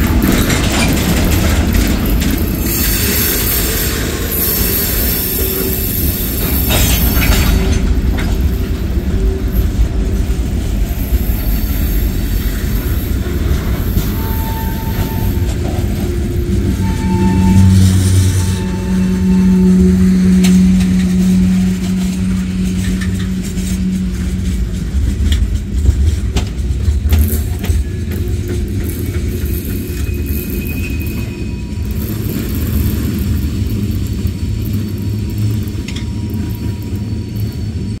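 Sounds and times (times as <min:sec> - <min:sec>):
freight train rolling on rails: 0:00.0 - 0:38.0.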